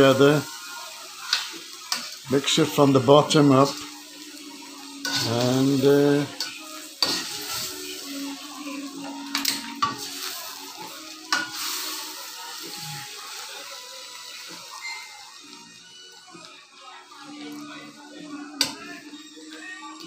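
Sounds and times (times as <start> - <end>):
soft sizzle from hot pan: 0.0 - 20.0
metal spoon scraping a pan: 5.0 - 7.7, 11.3 - 11.9.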